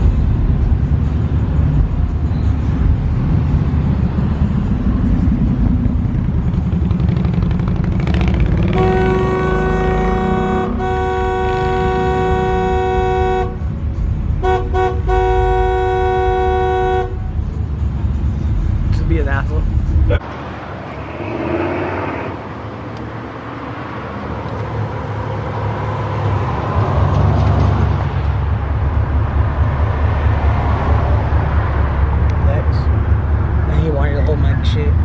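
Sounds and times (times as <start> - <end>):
truck engines rumbling: 0.0 - 35.0
car horn blowing: 8.7 - 13.7, 14.4 - 17.4.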